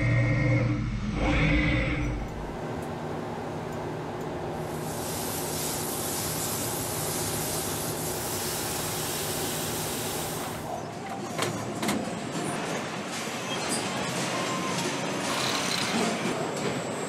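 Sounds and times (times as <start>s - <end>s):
machine humming: 0.0s - 10.6s
coolant spray hissing: 4.7s - 10.7s.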